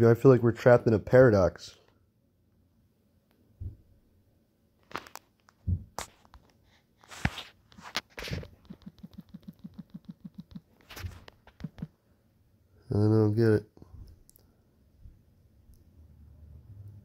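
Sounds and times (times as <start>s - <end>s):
smartphone being handled: 4.8s - 11.9s
touchscreen tapping: 8.5s - 11.9s.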